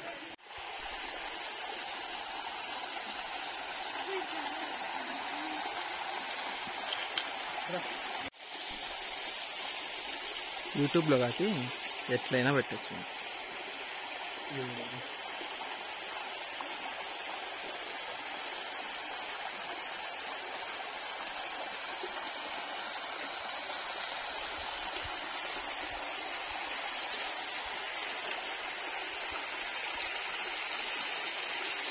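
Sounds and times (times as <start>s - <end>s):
stream running over rocks: 0.0s - 31.9s.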